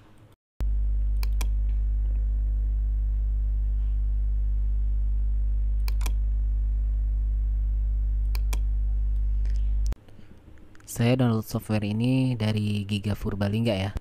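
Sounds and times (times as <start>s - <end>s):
low electrical hum: 0.0s - 14.0s
computer mouse double click: 1.2s - 1.5s, 5.8s - 6.2s.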